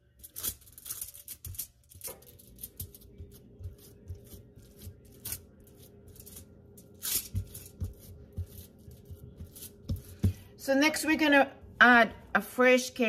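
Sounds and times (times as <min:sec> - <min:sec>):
aluminum foil crinkling: 0:00.0 - 0:09.6
hands patting raw meat: 0:07.2 - 0:10.5.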